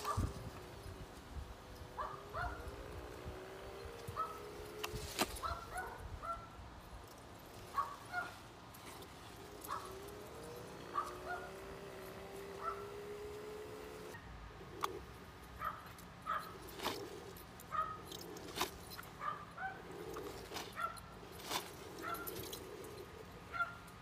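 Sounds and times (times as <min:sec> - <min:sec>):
dog yipping: 0:00.0 - 0:00.3, 0:02.0 - 0:02.7, 0:04.2 - 0:04.8, 0:05.4 - 0:06.6, 0:07.7 - 0:08.4, 0:09.5 - 0:13.0, 0:15.6 - 0:23.9
motor whining: 0:00.0 - 0:06.2, 0:07.0 - 0:24.0.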